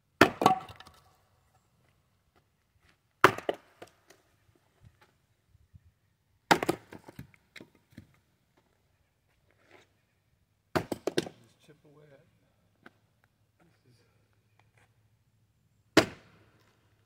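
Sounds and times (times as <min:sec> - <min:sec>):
axe striking a log: 0:00.2 - 0:01.0, 0:03.2 - 0:03.8, 0:06.5 - 0:07.2, 0:10.7 - 0:11.4, 0:16.0 - 0:16.4.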